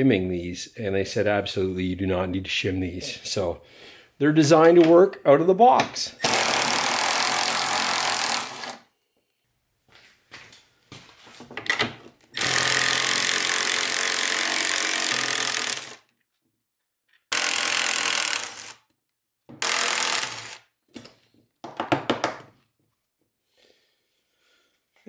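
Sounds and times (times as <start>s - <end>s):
impact driver spinning nuts: 6.2s - 8.8s, 12.4s - 16.0s, 17.3s - 18.8s, 19.6s - 20.7s.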